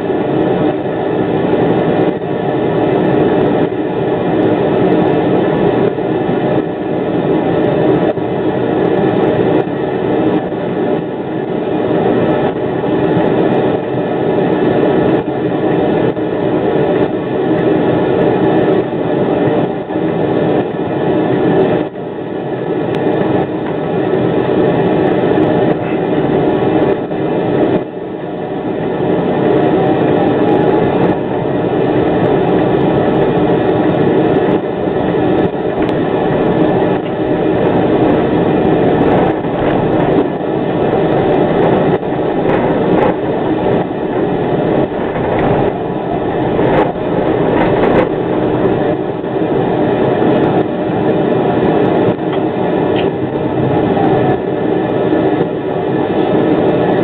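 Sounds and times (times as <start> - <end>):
tram wheels rumbling: 29.6 - 57.0.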